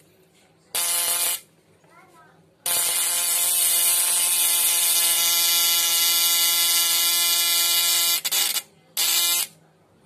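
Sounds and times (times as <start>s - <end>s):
electrical buzzing: 0.7s - 1.5s.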